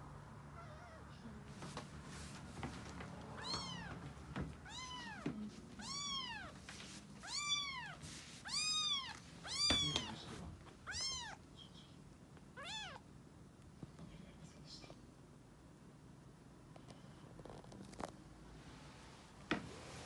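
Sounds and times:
cat meowing: 0.6 - 1.1, 3.3 - 4.0, 4.6 - 5.2, 5.8 - 6.6, 7.2 - 11.4, 12.6 - 13.1.

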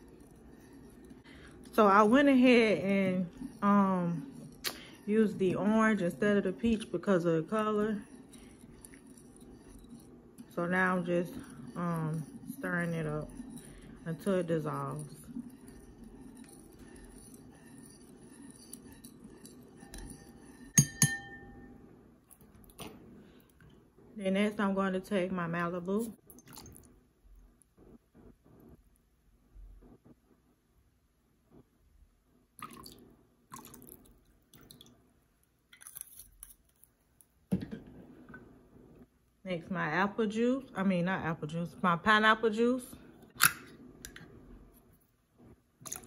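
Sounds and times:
spoon scraping ceramic bowl: 0.0 - 22.9
spoon clinking on bowl: 18.7 - 21.7.

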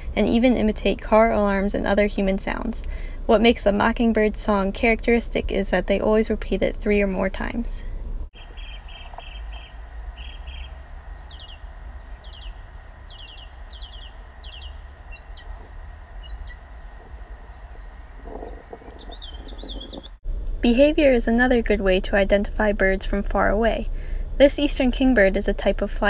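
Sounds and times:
low background rumble: 0.0 - 26.0
mockingbird singing: 8.4 - 20.2.

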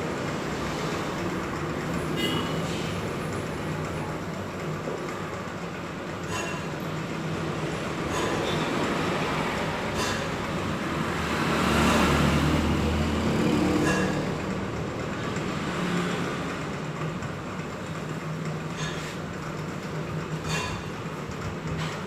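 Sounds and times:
heavy vehicle passing: 8.6 - 17.0.

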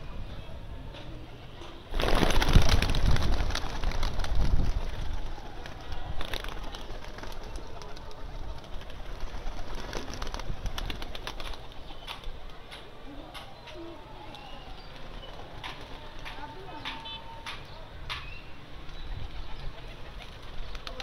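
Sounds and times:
pigeons flapping wings: 1.9 - 13.5, 14.2 - 17.7, 19.8 - 21.0.

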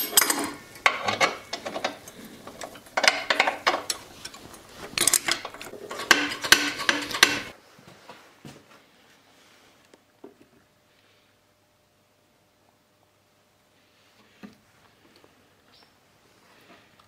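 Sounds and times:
metal clanking: 0.0 - 7.5
hand tools clicking: 5.0 - 7.5.

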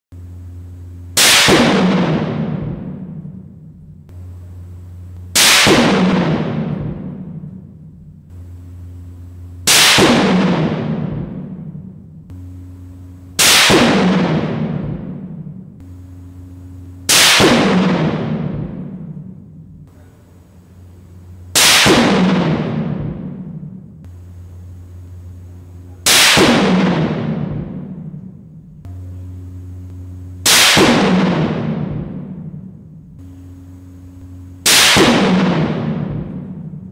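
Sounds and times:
rifle shots with echo: 1.2 - 3.5, 5.3 - 7.7, 9.7 - 12.7, 13.4 - 19.6, 21.6 - 24.0, 26.0 - 32.8, 33.4 - 36.9.

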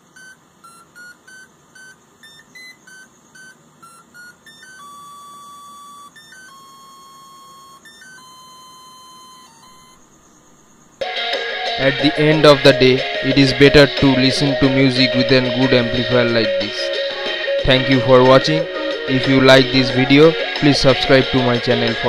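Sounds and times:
motor beeping tune: 0.0 - 10.2.

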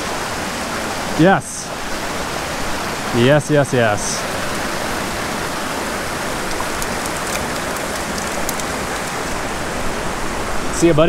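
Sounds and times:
creek running over rocks: 1.8 - 10.7
faint ticks: 6.6 - 9.3.

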